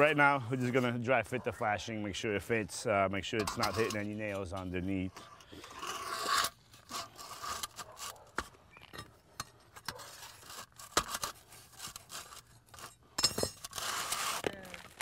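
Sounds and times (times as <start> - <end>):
flashing scraping on shingles: 2.4 - 15.0
flat tool scraping metal edge: 3.2 - 14.5.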